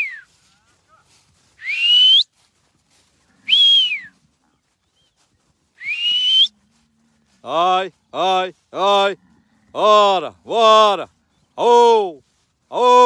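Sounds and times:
sharp mouth whistles: 5.8s - 6.5s.

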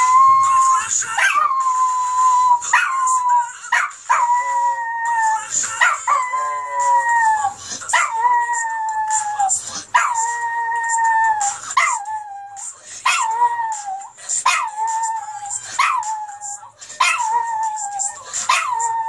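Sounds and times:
small dog howling: 0.0s - 19.0s
song playing: 0.0s - 19.0s.

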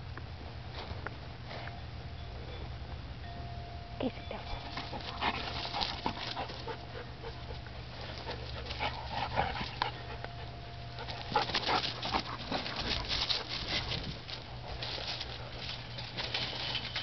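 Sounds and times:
dogs panting: 4.3s - 17.0s
dogs snuffling: 4.3s - 17.0s
dogs scuffling: 4.4s - 17.0s.

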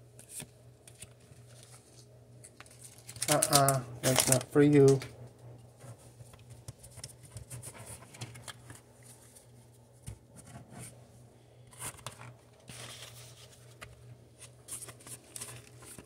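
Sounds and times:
plastic wrapper crinkling: 0.9s - 5.1s.

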